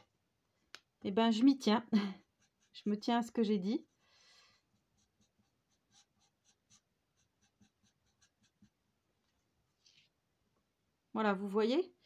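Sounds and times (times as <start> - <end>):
marker strokes on paper: 2.2 - 8.8.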